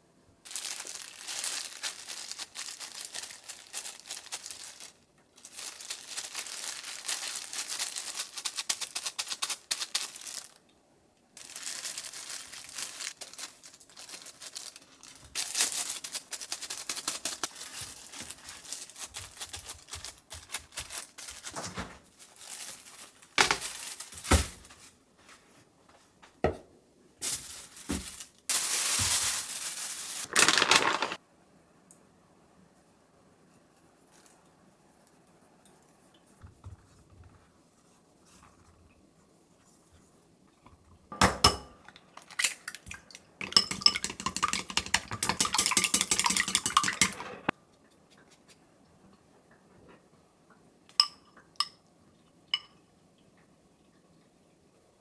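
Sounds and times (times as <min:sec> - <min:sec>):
plastic glove crinkling: 0:00.4 - 0:10.6, 0:11.4 - 0:25.5, 0:27.2 - 0:31.2.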